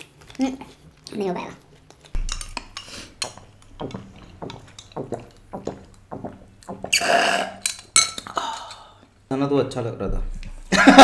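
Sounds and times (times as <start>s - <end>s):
dishes and cutlery clinking: 2.2s - 6.0s, 6.8s - 8.8s.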